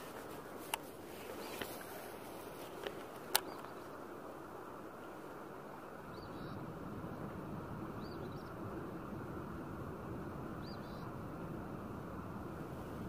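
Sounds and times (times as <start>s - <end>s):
low outdoor background noise: 0.0s - 13.0s
small songbird chirping: 1.2s - 1.8s, 3.3s - 4.0s, 6.0s - 6.6s, 7.9s - 8.6s, 10.6s - 11.1s.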